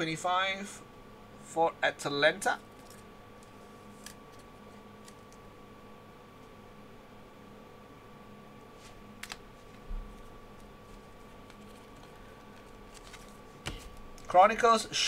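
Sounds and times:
faint electrical hum: 0:00.0 - 0:15.0
trading cards clicking and tapping: 0:11.4 - 0:14.3.

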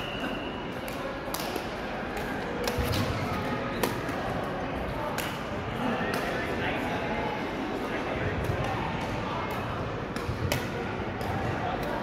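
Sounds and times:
echoing hall background: 0:00.0 - 0:12.0
racket hitting shuttlecock: 0:10.1 - 0:12.0.

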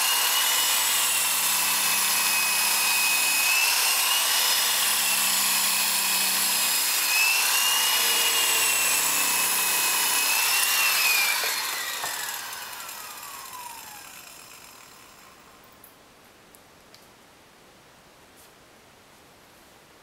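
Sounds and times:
electric polisher motor whine: 0:00.0 - 0:15.5.

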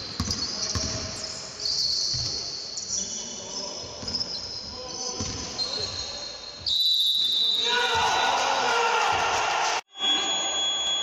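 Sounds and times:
sneakers squeaking on floor: 0:00.0 - 0:08.2.

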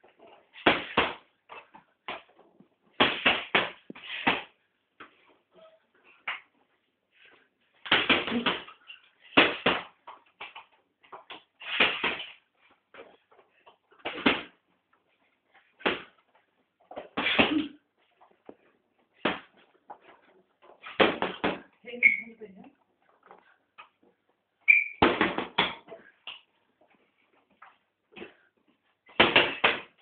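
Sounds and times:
gloves punching heavy bag: 0:00.6 - 0:01.3, 0:03.0 - 0:04.5, 0:29.1 - 0:30.0.

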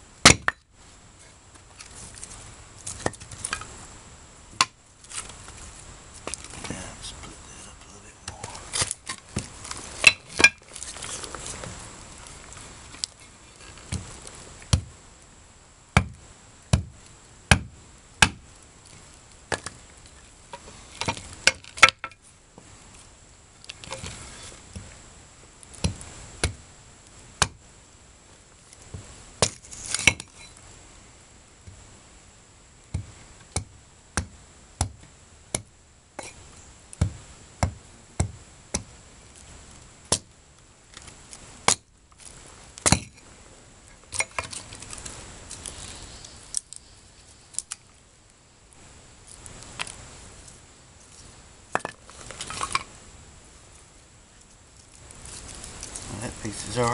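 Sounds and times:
axe chopping wood: 0:00.2 - 0:00.6, 0:04.6 - 0:04.8, 0:14.7 - 0:14.9, 0:16.0 - 0:18.4, 0:25.8 - 0:26.6, 0:27.4 - 0:27.6, 0:28.9 - 0:30.3, 0:32.9 - 0:35.7, 0:37.0 - 0:38.9, 0:40.1 - 0:40.3, 0:42.8 - 0:43.1.

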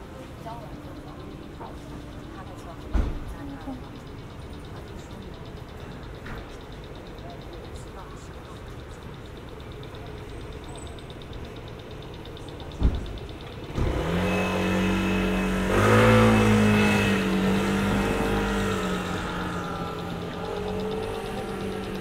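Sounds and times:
vehicle engine starting and revving: 0:10.5 - 0:22.0.

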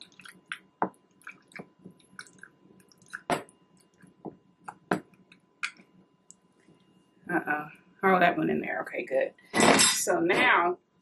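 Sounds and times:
wet squishing of fruit: 0:00.0 - 0:04.9.

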